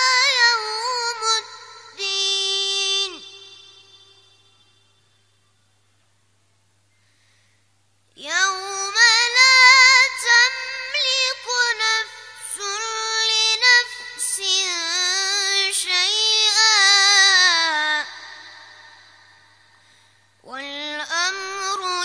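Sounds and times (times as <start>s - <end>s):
boy chanting recitation: 0.0s - 4.4s, 8.2s - 19.6s, 20.4s - 22.0s.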